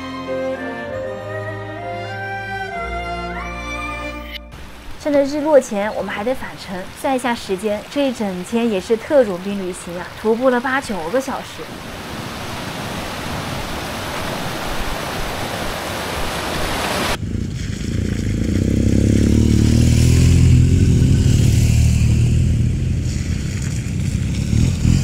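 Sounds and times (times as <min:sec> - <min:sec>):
stream rushing over rocks: 0:04.5 - 0:17.2
motorcycle engines droning: 0:17.2 - 0:25.0.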